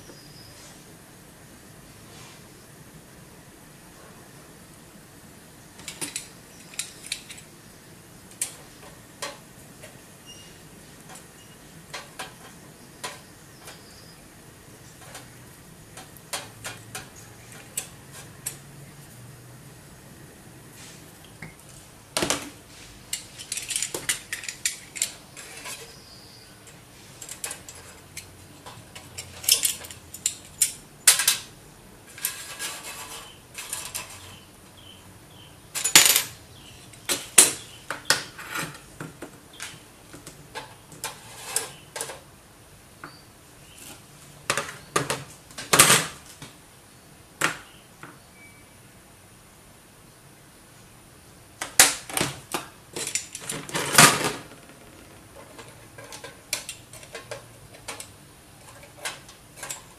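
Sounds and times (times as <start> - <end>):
metal tools clicking and clattering: 5.8 - 7.5, 23.1 - 26.0, 26.6 - 31.5, 32.1 - 34.4, 35.7 - 38.8, 53.0 - 59.9
metal tool scraping: 22.7 - 30.8, 32.1 - 34.4, 41.0 - 42.1.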